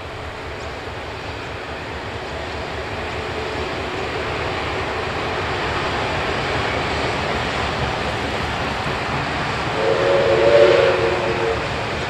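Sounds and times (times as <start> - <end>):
steam train rushing rumble: 0.0 - 12.0
train whistle chord: 9.7 - 12.0.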